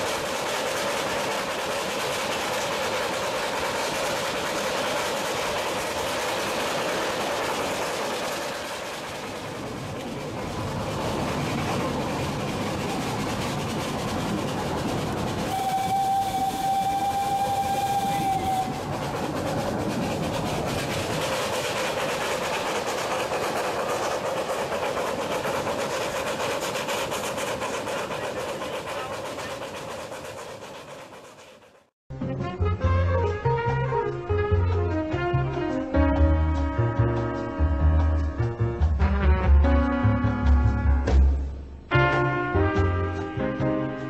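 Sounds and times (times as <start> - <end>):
wheels running on rail: 0.0 - 31.9
steam whistle: 15.4 - 19.8, 34.9 - 41.1.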